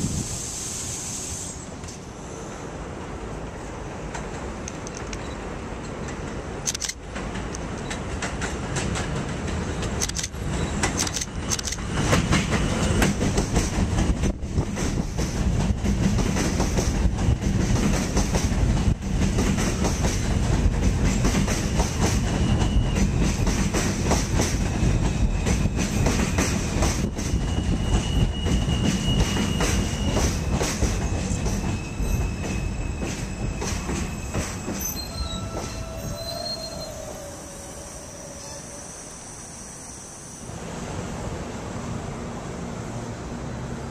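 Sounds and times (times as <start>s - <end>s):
train rumble and wheel clatter: 0.0s - 43.9s
high wheel squeal: 22.2s - 23.4s, 24.8s - 40.5s.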